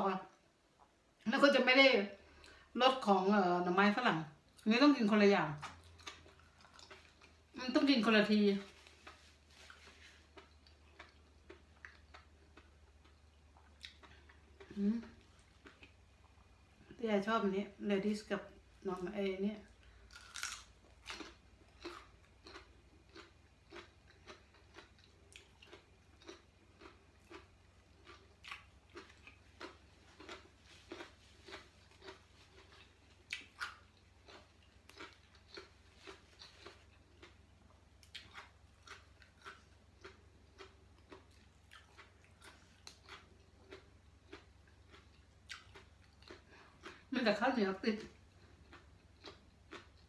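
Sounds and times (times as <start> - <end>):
low steady hum: 0.0 - 50.0
person chewing crunchy food: 5.6 - 7.6, 8.7 - 16.9, 19.7 - 47.1, 48.1 - 50.0.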